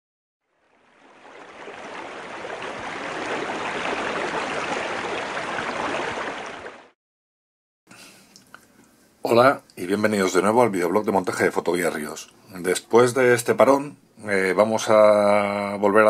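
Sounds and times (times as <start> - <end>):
rushing stream water: 0.5 - 7.0.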